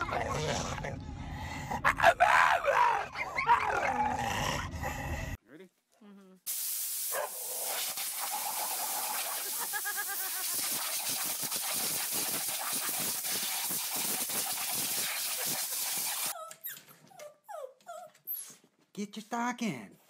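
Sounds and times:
spray wand jet hissing: 6.5s - 16.3s.

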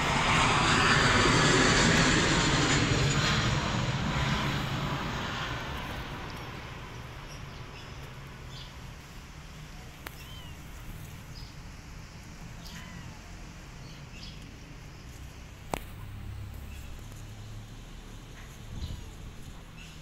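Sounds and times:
passing engine: 0.0s - 9.8s, 10.7s - 20.0s
faint high chirps: 10.1s - 10.7s.

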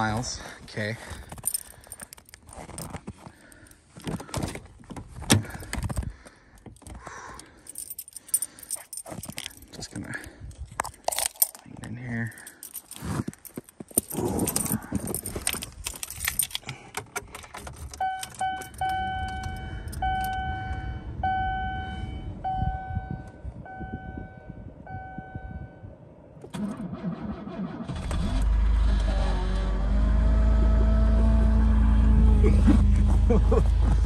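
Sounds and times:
keys jangling: 1.1s - 20.4s.

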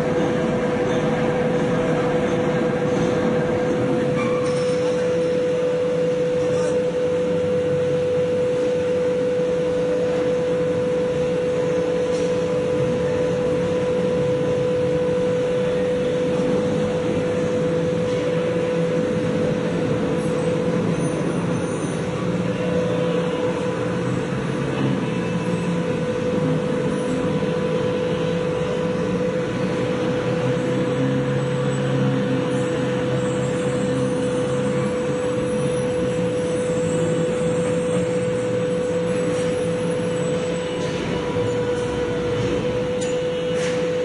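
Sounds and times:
machinery drone with whine: 0.0s - 44.0s.

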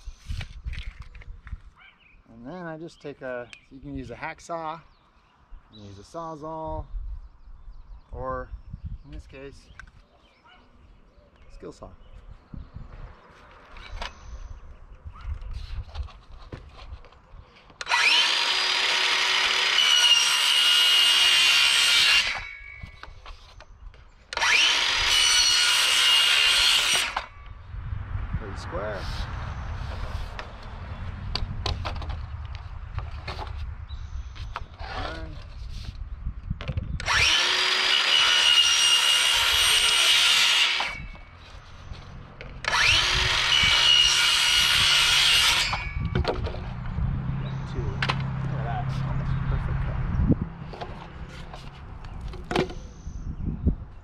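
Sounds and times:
circular saw cutting pipe: 17.8s - 22.8s, 24.3s - 27.4s, 37.0s - 41.2s, 42.6s - 46.2s.

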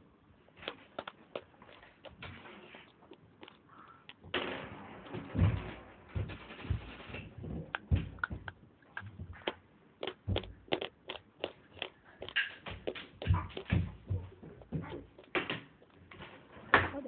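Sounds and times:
chewing with sharp crunches: 0.5s - 4.2s, 7.7s - 16.1s.

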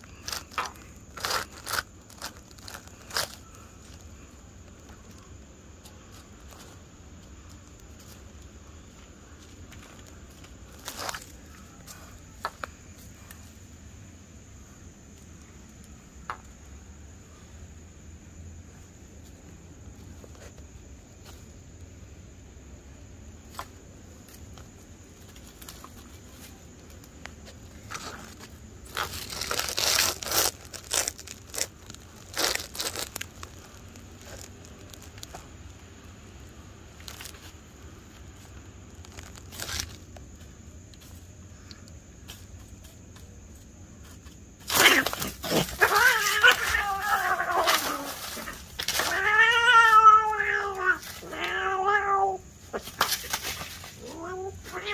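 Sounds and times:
dry leaves rustling: 0.0s - 6.8s, 27.6s - 35.6s, 36.9s - 41.2s, 44.0s - 54.9s
high insect drone: 0.0s - 54.9s.

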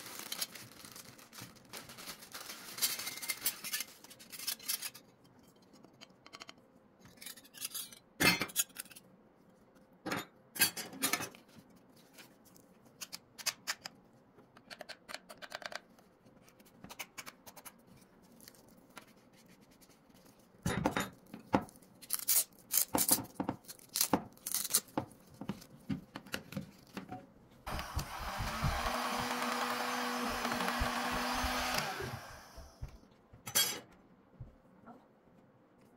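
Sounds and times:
heat gun fan blowing hum: 27.7s - 33.0s.

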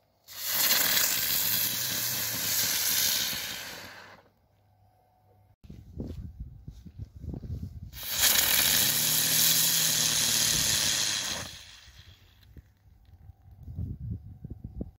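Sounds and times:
firework spinner hissing: 0.0s - 4.3s, 7.9s - 12.6s.

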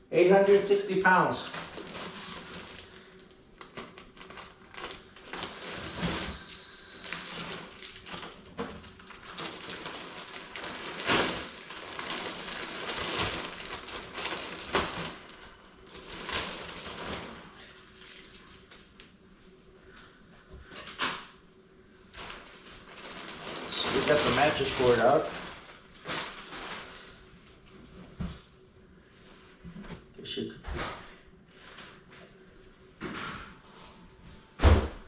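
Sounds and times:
plastic wrapping crinkling: 1.4s - 19.2s, 22.1s - 27.7s.

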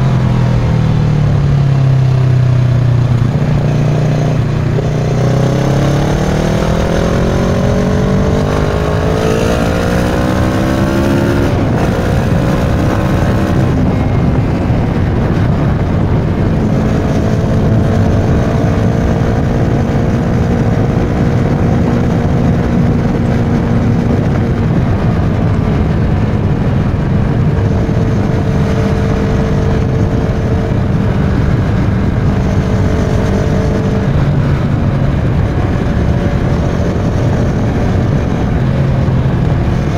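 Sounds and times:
motorcycle engine revving: 0.0s - 39.9s
wind rush: 0.0s - 39.9s.

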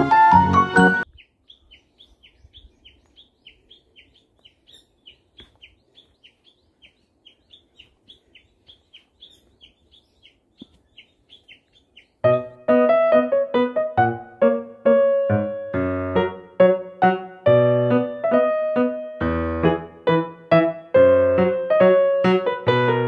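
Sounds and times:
bird chirping: 0.9s - 12.8s.

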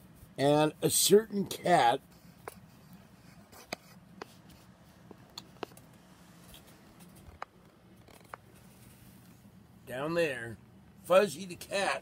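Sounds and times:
low steady hum: 0.0s - 12.0s
phone handling clicks and rustles: 5.0s - 8.5s.

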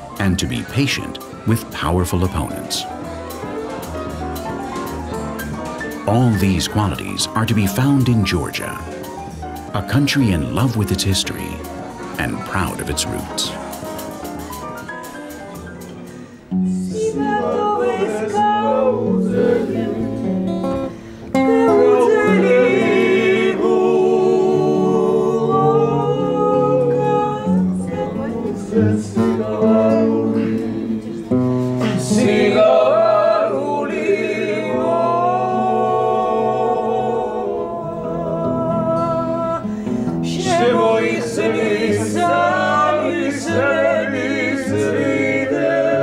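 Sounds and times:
guitar: 0.0s - 46.0s
person singing: 6.0s - 8.9s, 9.8s - 13.8s.

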